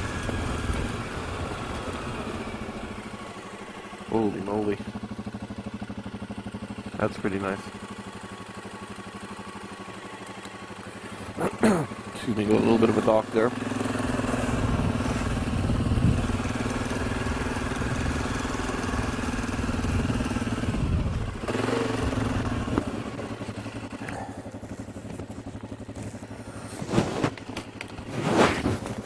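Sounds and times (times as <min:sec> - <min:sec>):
quad bike engine running: 0:00.0 - 0:29.0.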